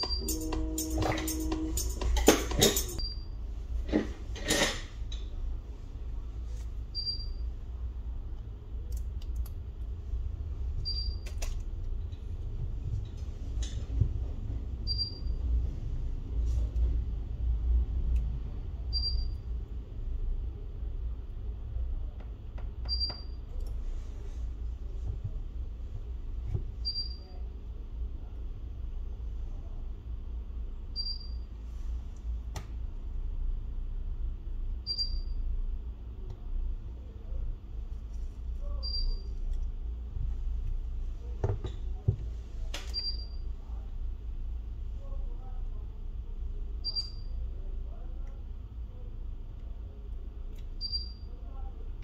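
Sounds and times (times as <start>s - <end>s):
short high beep: 0.0s - 2.0s
small tools clicking and tapping: 0.0s - 3.0s
low rumble: 5.3s - 21.8s.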